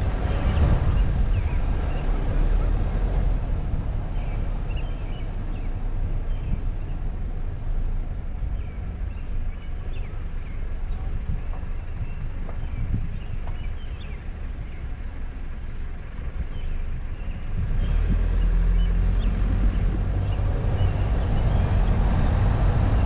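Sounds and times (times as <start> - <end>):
vehicle driving on paved road: 0.0 - 23.0
faint birds chirping: 0.1 - 23.0.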